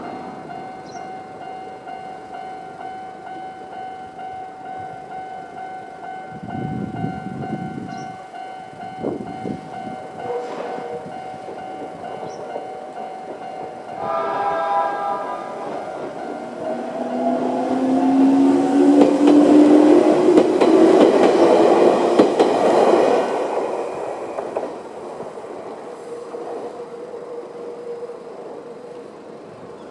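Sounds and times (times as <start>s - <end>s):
level crossing warning bell: 0.0s - 18.8s
multi-tone train horn: 10.1s - 11.3s, 13.9s - 19.9s.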